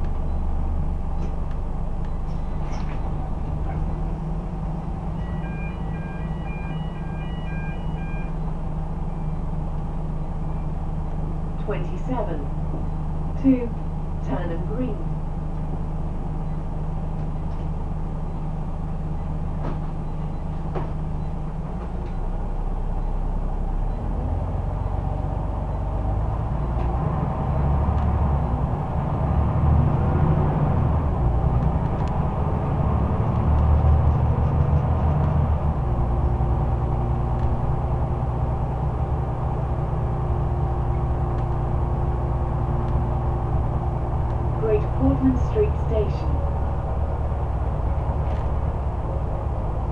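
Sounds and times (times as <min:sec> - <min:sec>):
bus diesel engine from inside: 0:00.0 - 0:49.9.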